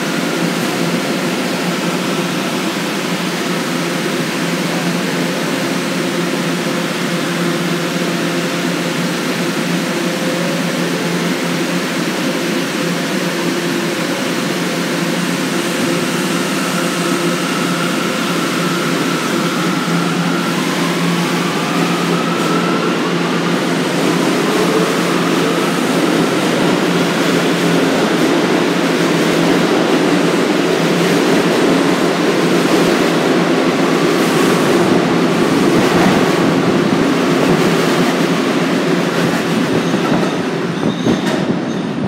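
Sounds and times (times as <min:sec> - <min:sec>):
subway train wheels on rails: 0:00.0 - 0:42.0
track clickety-clack: 0:00.0 - 0:42.0.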